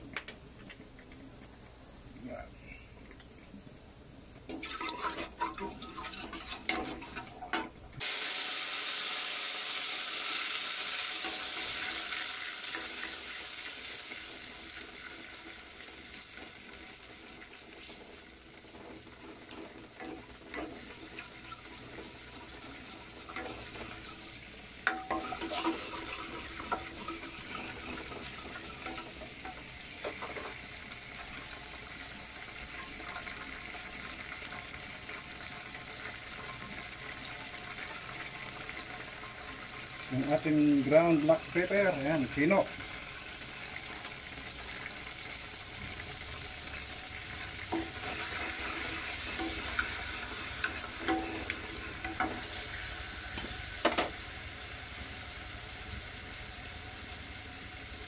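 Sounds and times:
sauce sizzling in a pan: 4.4s - 58.0s
spatula scraping a pan: 4.5s - 7.6s, 24.9s - 30.6s, 47.7s - 53.5s.

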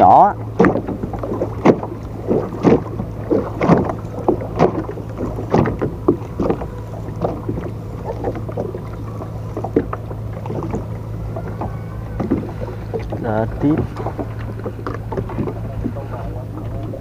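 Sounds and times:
boat knocks and splashes: 0.0s - 17.0s
steady low hum: 0.0s - 17.0s.

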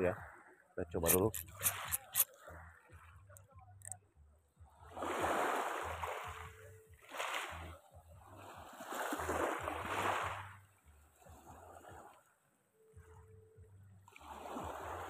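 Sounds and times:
small waves washing on shore: 4.9s - 7.7s, 8.4s - 10.6s, 14.1s - 15.0s.

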